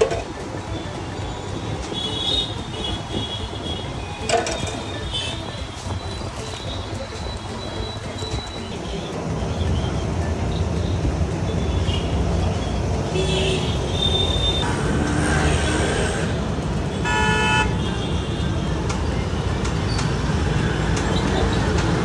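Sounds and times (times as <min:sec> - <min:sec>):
street traffic rumble: 0:00.0 - 0:22.0
vehicle horn honking: 0:13.1 - 0:15.8, 0:16.9 - 0:18.4.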